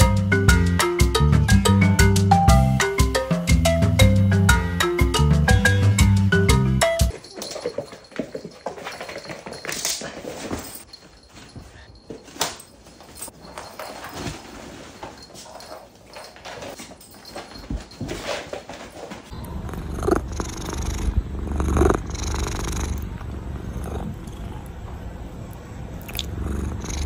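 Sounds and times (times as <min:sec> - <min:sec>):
cat purring: 0:19.4 - 0:25.0, 0:26.0 - 0:27.0.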